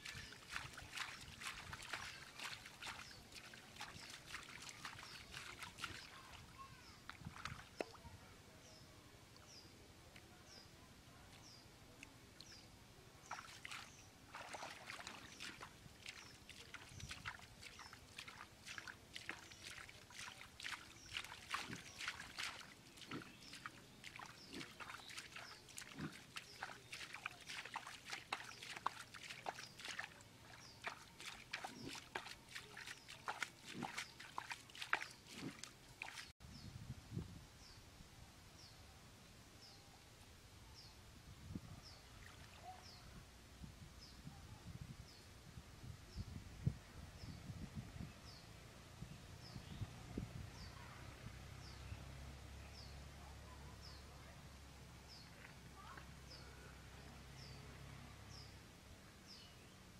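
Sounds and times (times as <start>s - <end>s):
hand splashing in muddy water: 0.0s - 6.2s, 13.2s - 36.3s.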